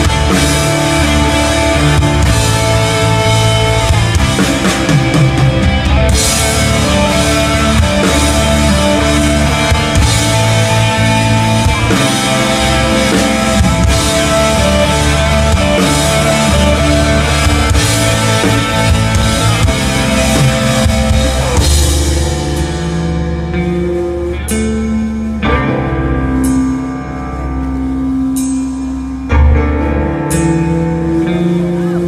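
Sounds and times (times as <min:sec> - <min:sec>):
drum kit with cymbals: 0:00.0 - 0:25.4
guitars: 0:00.0 - 0:32.0
live band playing: 0:00.0 - 0:32.0.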